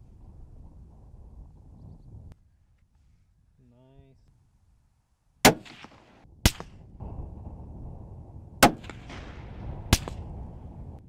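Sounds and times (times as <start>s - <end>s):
rifle shots with echo: 5.4s - 7.4s, 8.6s - 10.8s.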